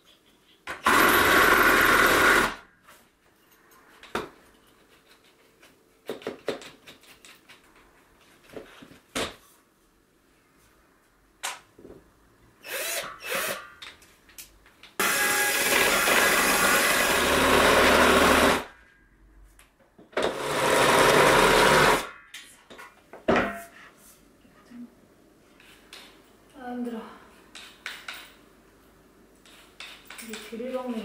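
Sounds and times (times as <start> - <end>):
cordless drill driving screws: 12.6 - 13.7, 15.0 - 18.7, 20.2 - 22.1.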